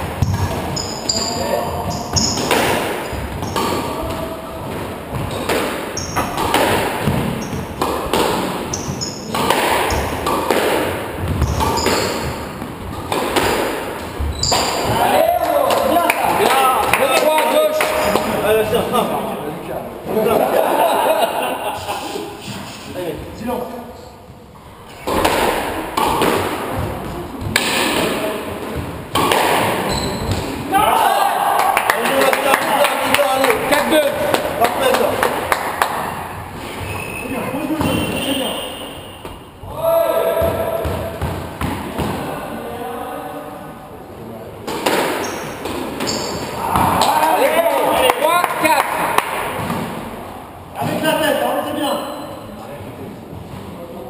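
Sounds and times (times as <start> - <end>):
squash ball hits echoing: 0.0 - 18.6, 24.8 - 42.4, 44.6 - 50.2.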